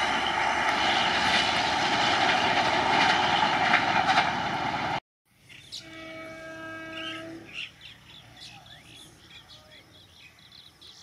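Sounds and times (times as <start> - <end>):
train rushing past on rails: 0.0 - 5.0
train horn blast: 5.7 - 7.6.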